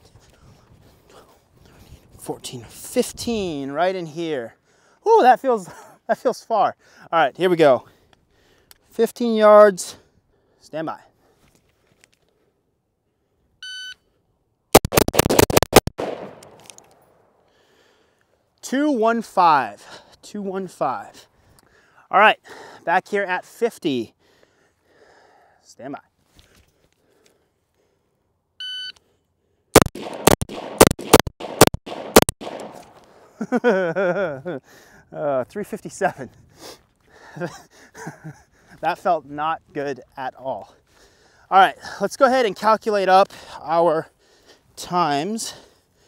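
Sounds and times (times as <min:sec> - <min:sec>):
rapid rifle shots: 0:14.8 - 0:16.7, 0:29.8 - 0:33.1
gunshot echo: 0:14.8 - 0:16.9, 0:29.8 - 0:33.2.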